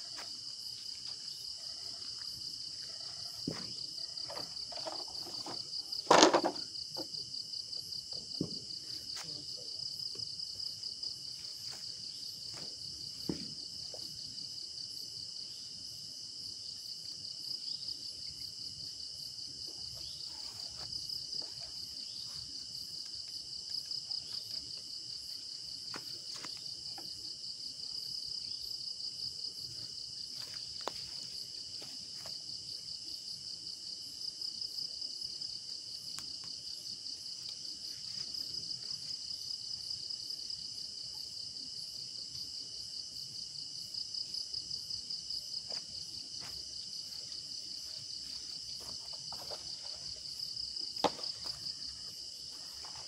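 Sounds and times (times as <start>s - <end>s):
crickets trilling: 0.0s - 53.0s.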